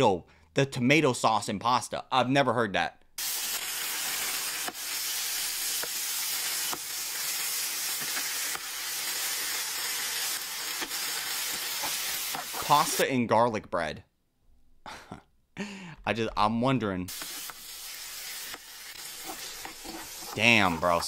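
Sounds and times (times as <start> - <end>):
pasta sizzling in oily pan: 3.2 - 13.0, 17.1 - 21.0.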